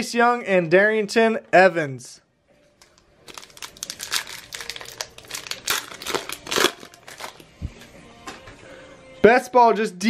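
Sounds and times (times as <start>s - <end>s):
card pack wrapper crinkling: 2.8s - 7.4s.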